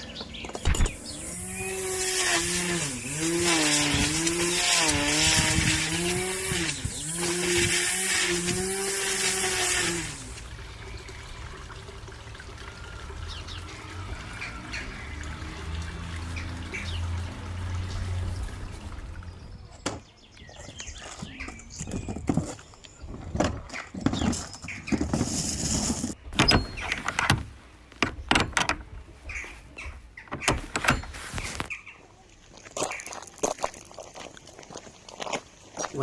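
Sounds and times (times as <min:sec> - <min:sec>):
birds chirping: 0:00.0 - 0:08.8, 0:12.6 - 0:25.5, 0:26.2 - 0:27.4, 0:28.0 - 0:33.6
running water rushing: 0:02.4 - 0:19.8
rustling: 0:20.8 - 0:27.2.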